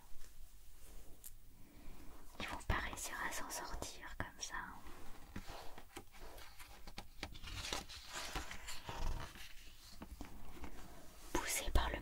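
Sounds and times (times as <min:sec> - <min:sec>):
hands sliding over paper: 0:04.8 - 0:11.4
paper page rustling: 0:05.2 - 0:10.9.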